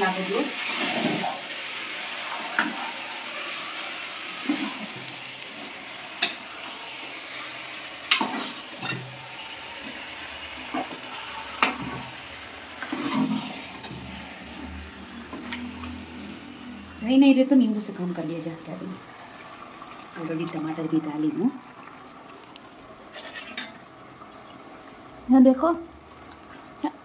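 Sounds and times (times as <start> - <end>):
food sizzling in a pot: 0.0 - 22.3
metal ladle scraping a pot: 23.1 - 23.8.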